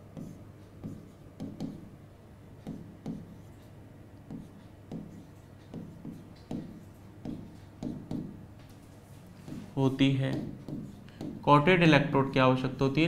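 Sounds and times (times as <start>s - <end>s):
stylus tapping on pen tablet: 0.1s - 1.9s, 2.6s - 3.6s, 4.2s - 8.7s, 9.4s - 11.5s.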